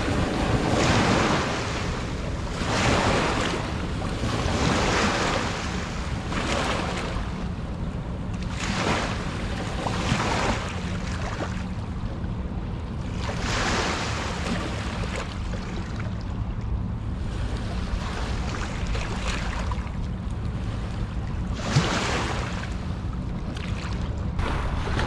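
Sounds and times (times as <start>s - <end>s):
sea waves washing in: 0.0s - 25.0s
steady low rumble: 0.0s - 25.0s.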